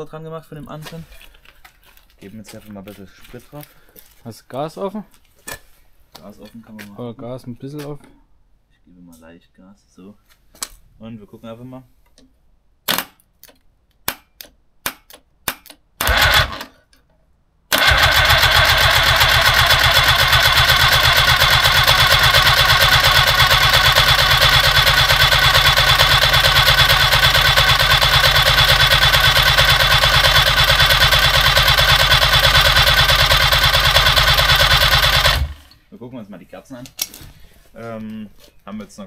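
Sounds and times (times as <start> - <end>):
engine cranking by starter motor: 16.0 - 16.7, 17.7 - 35.8.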